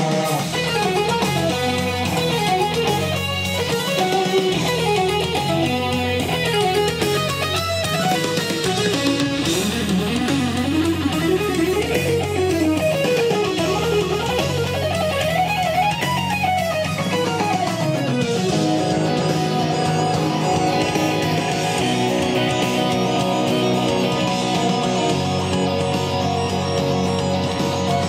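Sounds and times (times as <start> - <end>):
guitar music through loudspeaker: 0.0 - 28.0
steady bass line: 0.0 - 28.0.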